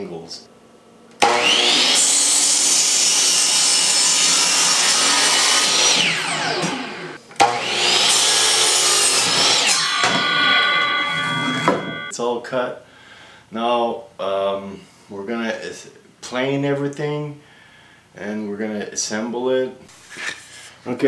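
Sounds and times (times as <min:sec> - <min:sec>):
miter saw cutting wood: 0:01.2 - 0:12.1.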